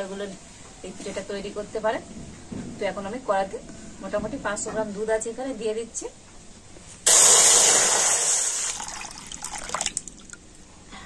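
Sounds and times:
milk pouring rush: 0:07.1 - 0:10.4.

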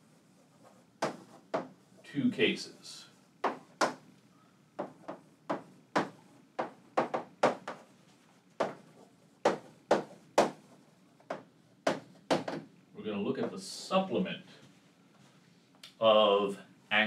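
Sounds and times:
chalk tapping on chalkboard: 0:00.6 - 0:01.8, 0:03.4 - 0:04.0, 0:04.8 - 0:07.9, 0:08.6 - 0:12.6.

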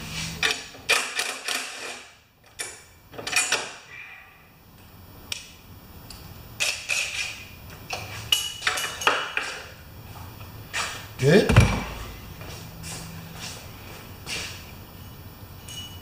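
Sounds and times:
tool rattling and clinking on bolt: 0:00.4 - 0:03.8, 0:07.9 - 0:09.5.

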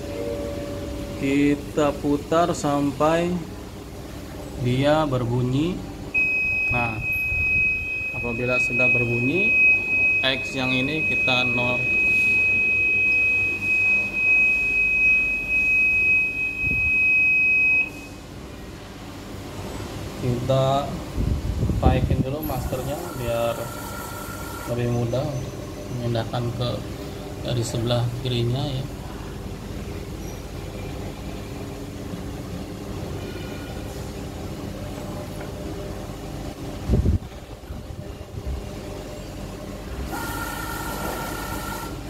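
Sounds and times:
machine humming: 0:00.0 - 0:42.0
high-pitched contact buzzer beep: 0:22.8 - 0:24.8, 0:40.1 - 0:42.0.

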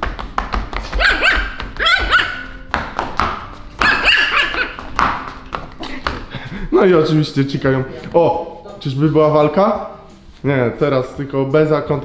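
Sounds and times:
puppy yapping: 0:00.9 - 0:02.6, 0:03.8 - 0:04.9.

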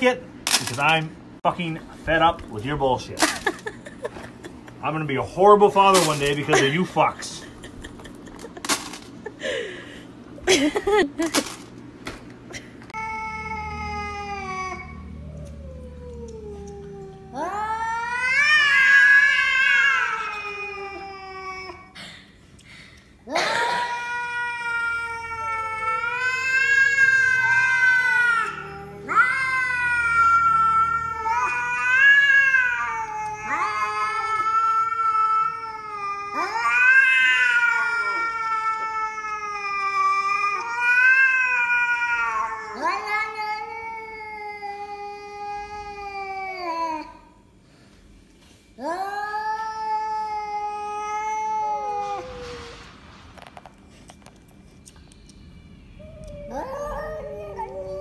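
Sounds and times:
cat yowling: 0:13.0 - 0:21.8, 0:23.3 - 0:47.2, 0:48.8 - 0:53.0, 0:56.0 - 0:58.0
cat hissing: 0:25.2 - 0:38.3.

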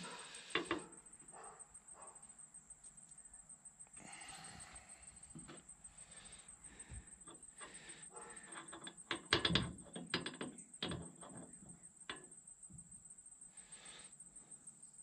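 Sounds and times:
metal parts clicking and clinking: 0:08.4 - 0:11.5.

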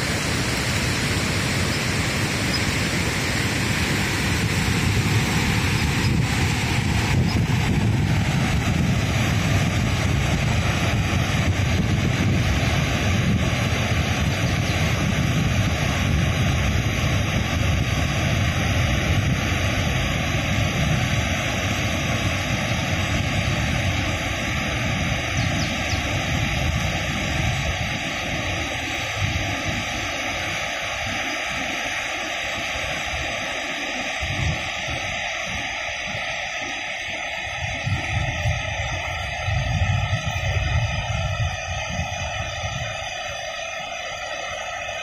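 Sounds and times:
waterfall roaring: 0:00.0 - 0:45.0.

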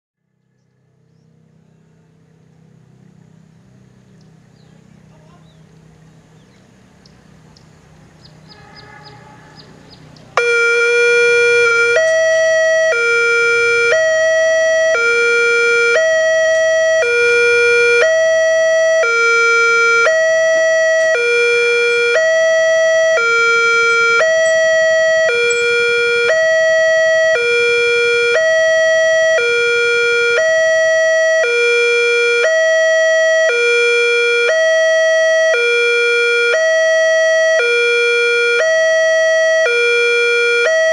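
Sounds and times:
faint background rumble: 0:00.3 - 0:10.6
level-crossing two-tone alarm: 0:10.4 - 0:40.9.

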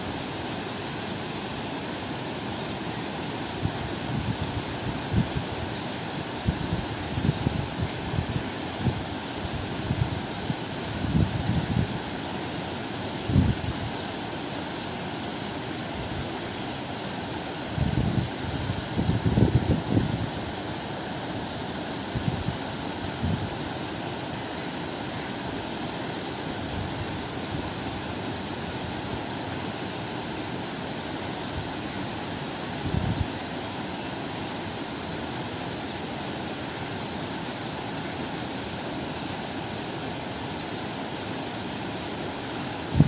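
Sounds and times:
river rushing over rapids: 0:00.0 - 0:43.0
wind gusts on microphone: 0:06.4 - 0:12.0, 0:13.2 - 0:13.9, 0:17.8 - 0:20.6, 0:22.1 - 0:23.6, 0:32.8 - 0:33.3.

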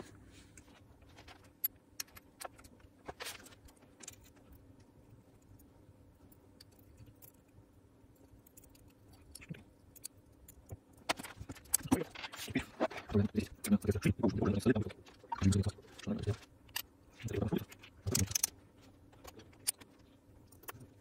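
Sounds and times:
metallic clicks of gear parts: 0:16.7 - 0:18.6.

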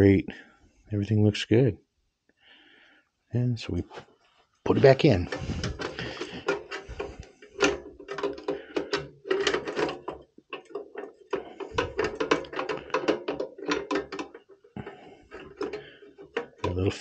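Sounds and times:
metal clicks and knocks: 0:04.7 - 0:17.0.

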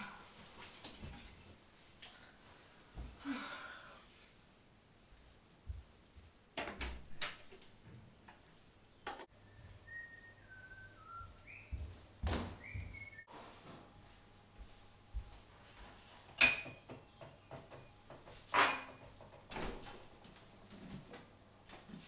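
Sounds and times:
person whistling: 0:09.5 - 0:11.7.

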